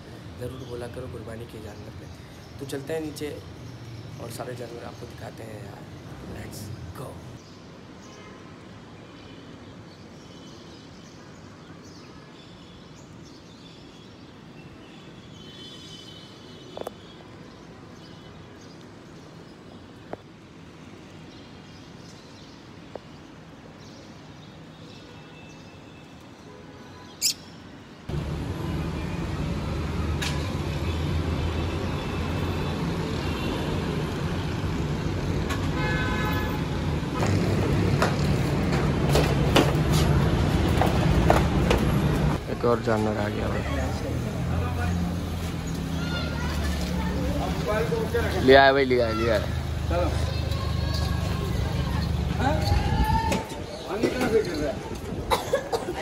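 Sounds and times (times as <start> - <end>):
road traffic noise: 0.0 - 56.0
birds chirping: 21.0 - 38.7.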